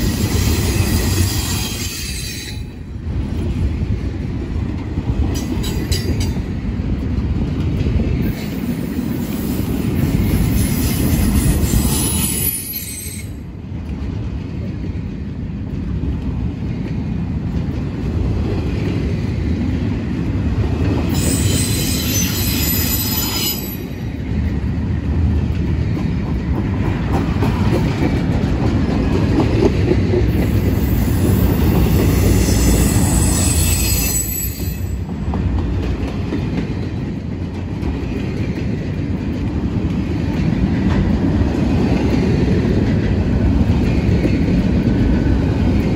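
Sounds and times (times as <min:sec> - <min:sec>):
train wheels rumbling on rail: 0:00.0 - 0:45.9
high-pitched wheel squeal: 0:21.2 - 0:23.8, 0:32.1 - 0:35.0.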